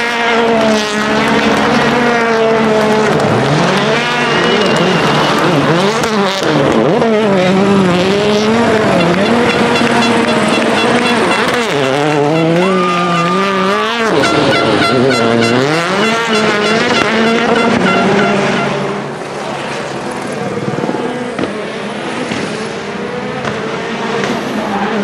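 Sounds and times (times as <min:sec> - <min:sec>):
car engine revving hard: 0:00.0 - 0:19.2
tyre squeal: 0:03.9 - 0:06.1, 0:09.0 - 0:18.8.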